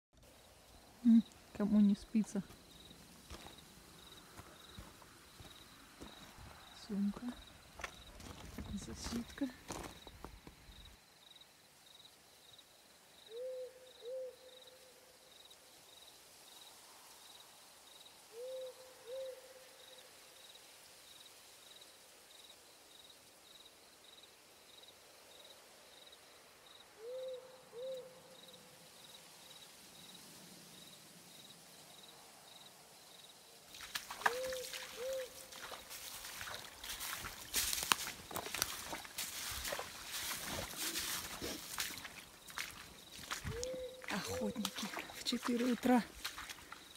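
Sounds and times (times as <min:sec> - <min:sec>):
footsteps: 0:02.5 - 0:10.7, 0:33.7 - 0:46.9
owl hooting: 0:13.3 - 0:14.6, 0:18.3 - 0:19.6, 0:27.0 - 0:28.4, 0:34.2 - 0:35.8, 0:43.4 - 0:45.0.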